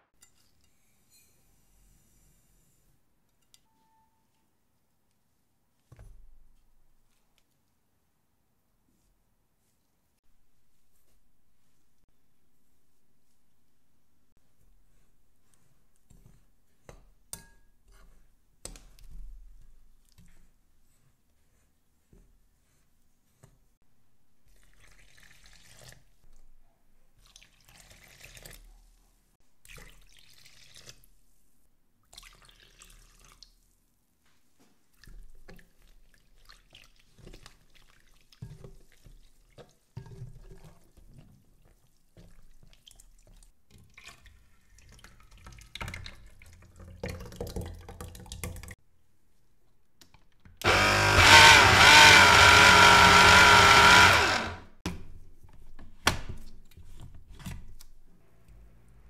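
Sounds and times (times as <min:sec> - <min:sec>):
water pouring into a bowl: 0:24.5 - 0:26.2, 0:27.2 - 0:28.6, 0:29.6 - 0:31.1, 0:32.0 - 0:33.6
whisk stirring thick batter: 0:35.0 - 0:47.0
blender running loudly: 0:50.6 - 0:54.7.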